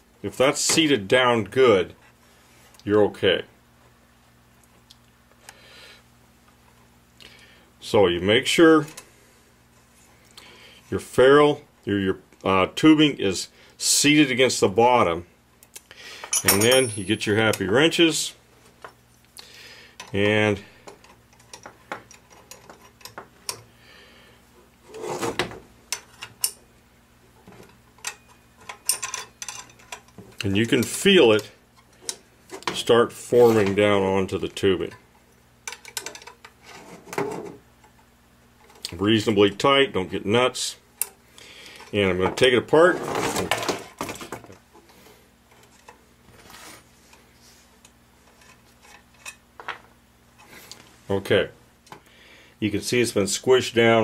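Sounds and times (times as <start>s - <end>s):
wrenches clinking on brass fitting: 16.2s - 17.5s, 28.0s - 30.0s.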